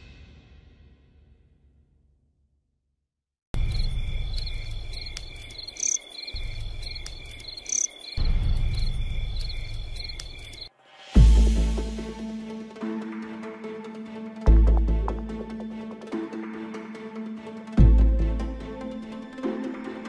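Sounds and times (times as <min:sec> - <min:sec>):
night insects chirping: 0:03.6 - 0:10.7.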